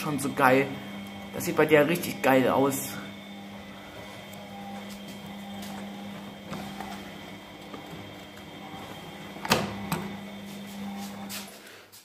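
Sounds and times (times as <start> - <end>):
washing machine motor hum: 0.0 - 12.0.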